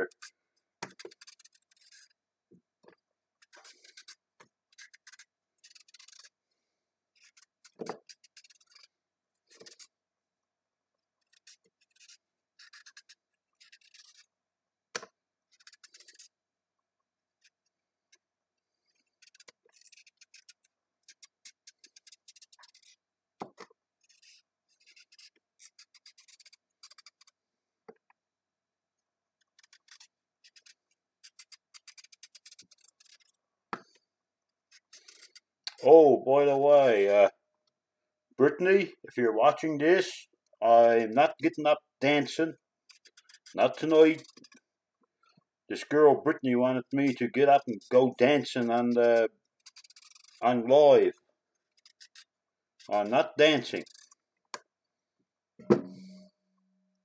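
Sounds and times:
knife scraping carrot: 0.0s - 2.2s, 3.4s - 6.4s, 7.1s - 10.0s, 11.2s - 14.3s, 15.5s - 16.4s, 18.7s - 23.0s, 24.0s - 27.4s, 29.4s - 33.4s, 34.7s - 35.8s, 40.7s - 44.7s, 45.8s - 50.8s, 51.7s - 54.2s.

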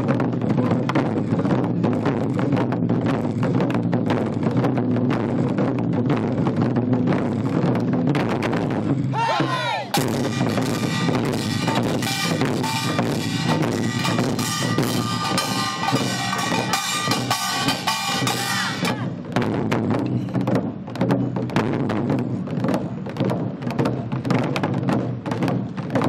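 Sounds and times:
barrel drums beaten with sticks: 0.0s - 26.0s.

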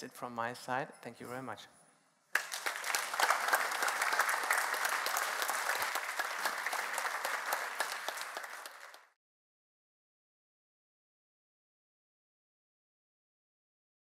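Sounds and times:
audience applauding: 2.3s - 9.2s.

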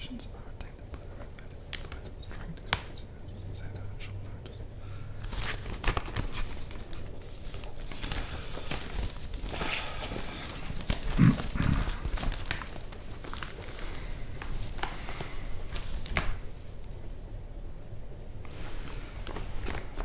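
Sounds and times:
newspaper rustling: 5.2s - 16.6s, 18.4s - 20.0s.

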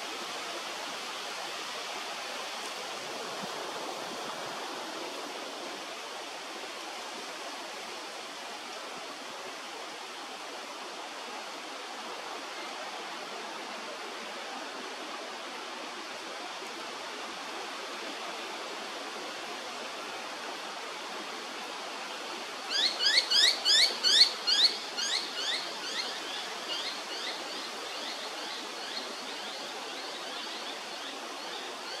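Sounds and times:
background hiss: 0.0s - 32.0s.

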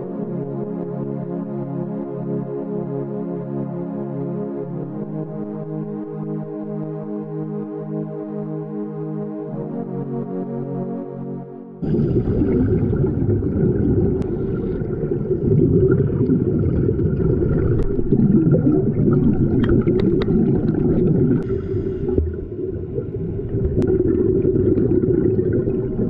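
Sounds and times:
underwater air bubbling: 11.8s - 26.0s.

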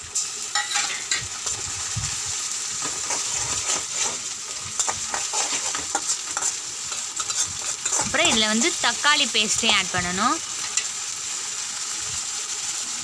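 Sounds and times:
onions sizzling in oil: 0.0s - 13.0s
spoon scraping pan: 0.5s - 1.6s, 2.8s - 8.8s.

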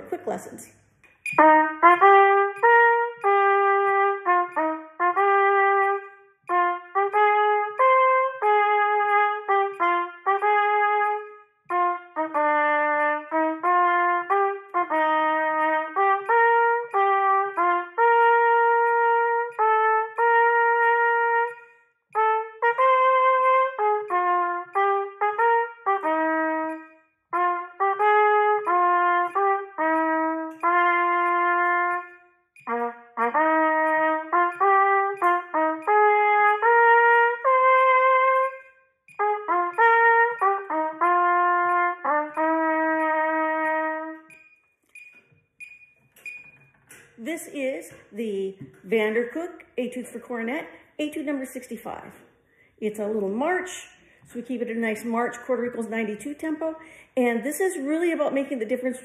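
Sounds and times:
solo trumpet playing march: 1.2s - 44.4s.

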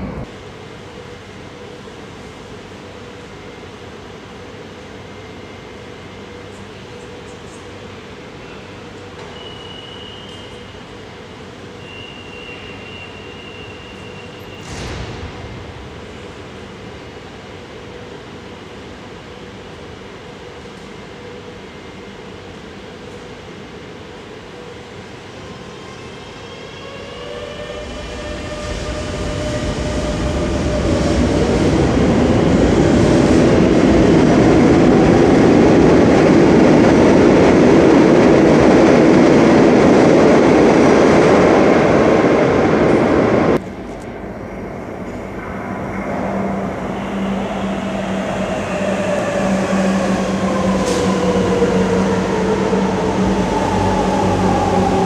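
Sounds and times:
metro train motor whining: 24.9s - 40.8s, 45.8s - 55.0s
train running rumble: 26.8s - 55.0s.

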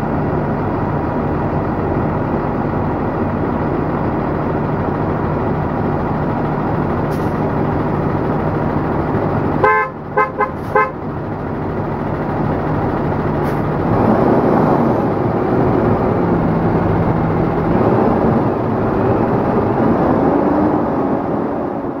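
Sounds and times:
bus engine running: 0.0s - 22.0s
horn toots: 9.6s - 11.0s.

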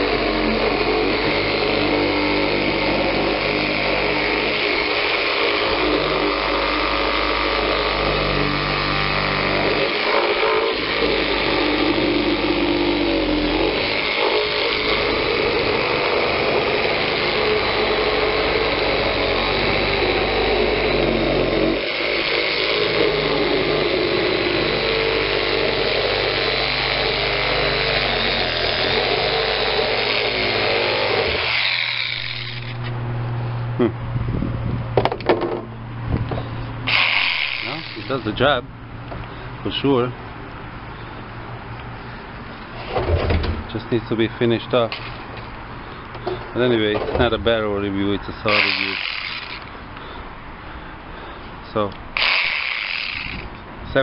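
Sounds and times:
reciprocating saw cutting plastic: 0.0s - 33.0s, 36.8s - 38.6s, 48.4s - 50.2s, 51.8s - 54.0s.

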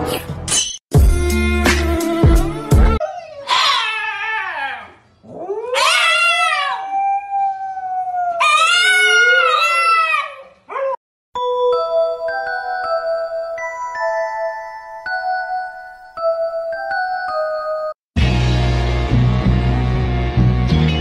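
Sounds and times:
dog yelp: 3.0s - 4.9s, 5.7s - 6.8s
dog howling: 3.0s - 11.0s.

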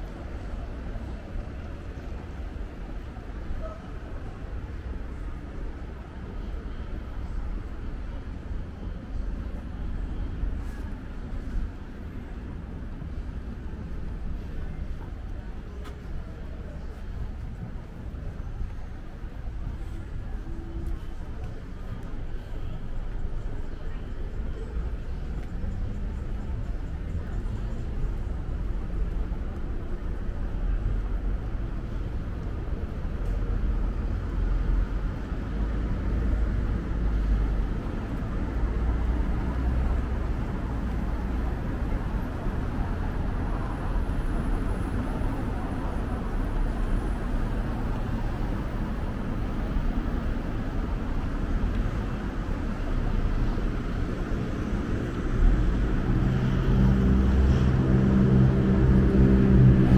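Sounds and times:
city traffic rumble: 0.0s - 59.9s
low pitched drone: 55.6s - 59.9s.

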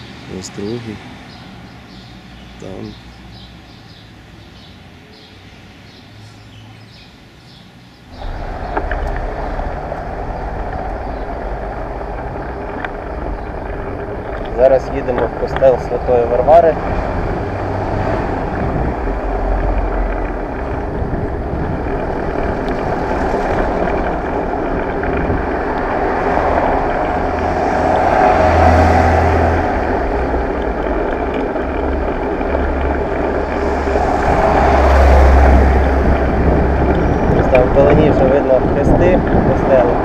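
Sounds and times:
wind buffeting microphone: 8.1s - 40.0s.

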